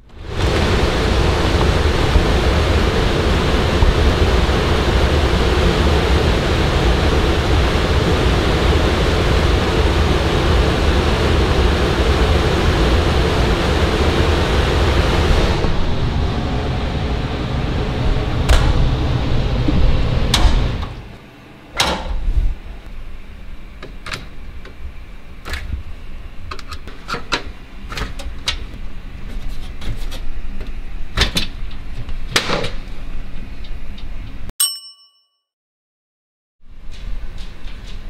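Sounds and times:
air rushing through vent grille: 0:00.0 - 0:26.5.

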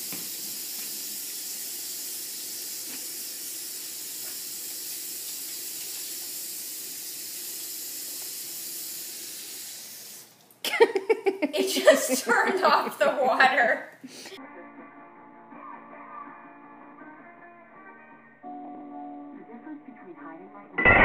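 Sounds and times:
faucet water splashing: 0:00.0 - 0:10.5.

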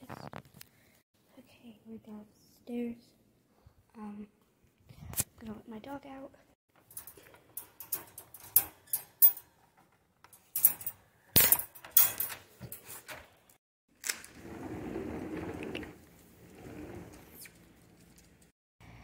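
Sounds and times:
crate door rattling and clanking: 0:10.6 - 0:12.4.

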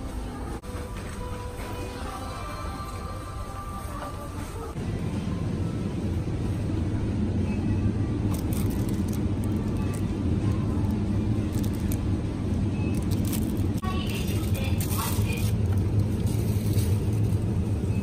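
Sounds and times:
refrigerated cases humming: 0:00.0 - 0:18.0
plastic wrap crackling: 0:08.3 - 0:12.1, 0:12.9 - 0:17.3.

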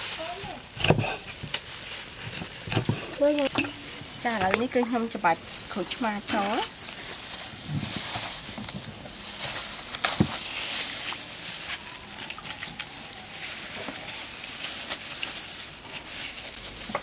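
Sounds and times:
water splashing in steel basin: 0:10.5 - 0:15.7.

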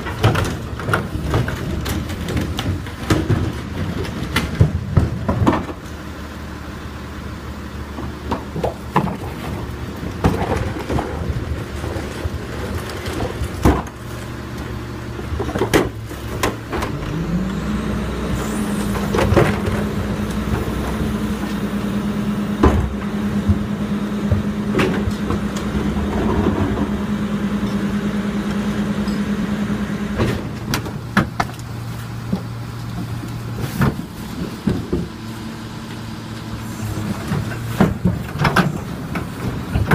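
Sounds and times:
plastic carts banging: 0:00.0 - 0:05.8, 0:37.3 - 0:39.9
diesel truck engine idling: 0:00.0 - 0:39.9.

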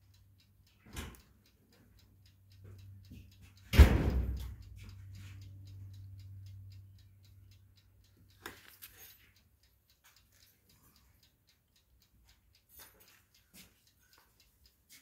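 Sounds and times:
light ticking: 0:00.0 - 0:15.0
loud thump: 0:03.8 - 0:04.4.

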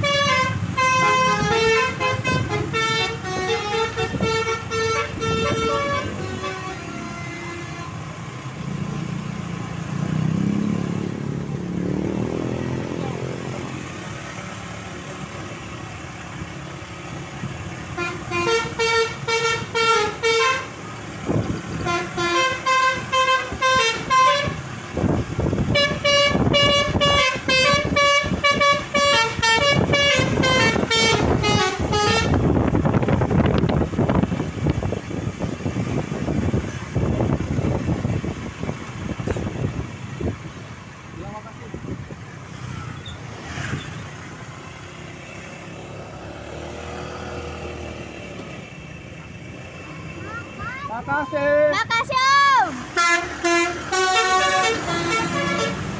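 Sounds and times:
musical air horn tune: 0:00.0 - 0:08.0, 0:18.0 - 0:20.7, 0:21.8 - 0:24.6, 0:25.7 - 0:32.4, 0:53.0 - 0:55.9
vehicle engine noise: 0:00.0 - 0:55.9.

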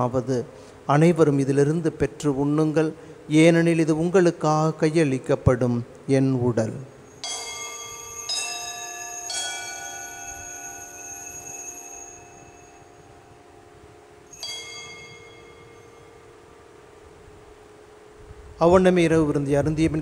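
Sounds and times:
bell struck and ringing: 0:07.1 - 0:13.6, 0:14.2 - 0:16.5.

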